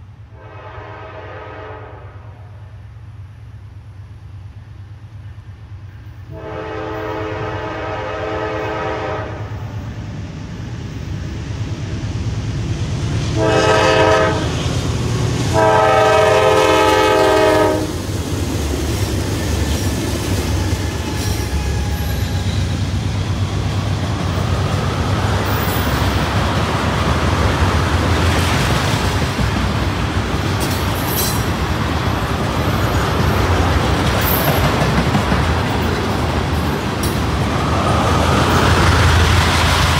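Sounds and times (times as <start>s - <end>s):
locomotive air horn blasts: 0.3s - 2.5s, 6.3s - 9.6s, 13.3s - 14.6s, 15.5s - 18.0s
train wheels rolling on rails: 2.8s - 39.9s.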